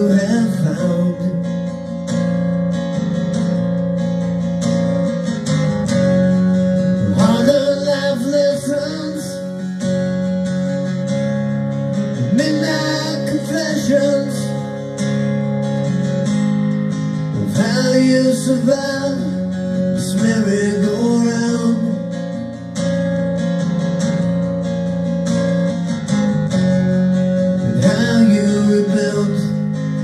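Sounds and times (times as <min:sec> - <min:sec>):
strummed acoustic guitar: 0:00.0 - 0:30.0
person singing: 0:07.0 - 0:09.7, 0:12.2 - 0:14.7, 0:17.4 - 0:22.2, 0:27.6 - 0:29.8.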